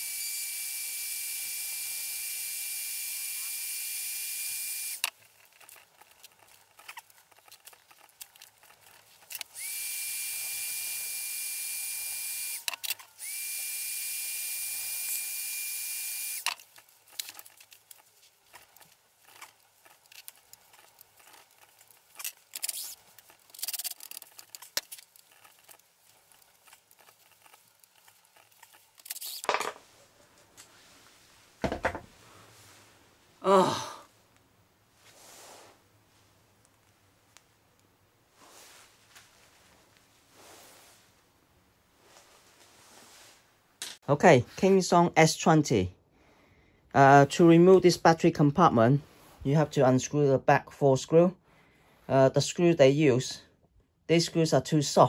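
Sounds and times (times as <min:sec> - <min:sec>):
heat gun blowing: 0:00.0 - 0:05.1, 0:09.2 - 0:18.0
cordless driver burst: 0:09.3 - 0:16.6.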